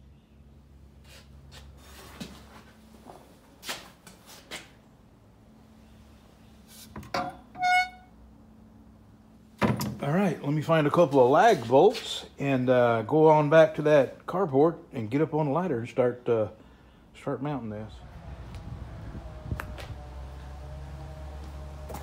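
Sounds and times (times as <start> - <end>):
brief high squeak: 7.5 - 8.1.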